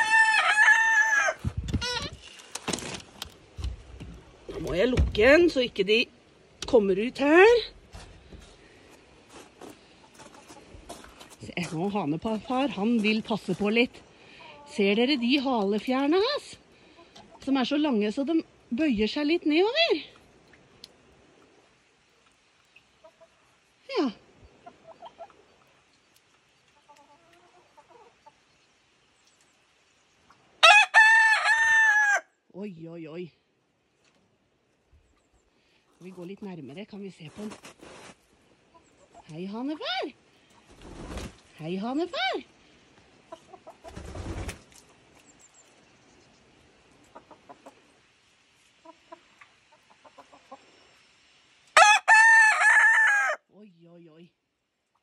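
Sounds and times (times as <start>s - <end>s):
rooster crowing: 0.0s - 1.4s, 30.6s - 32.3s, 51.8s - 53.4s
hens clucking: 9.7s - 11.4s, 24.5s - 25.7s, 26.7s - 28.4s, 43.2s - 44.6s, 46.2s - 48.0s, 48.7s - 50.9s.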